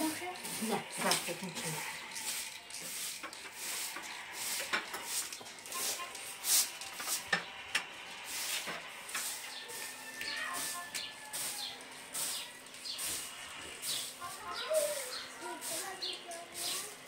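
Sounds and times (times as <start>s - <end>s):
broom sweeping carpet: 0.0s - 7.3s, 8.2s - 17.0s.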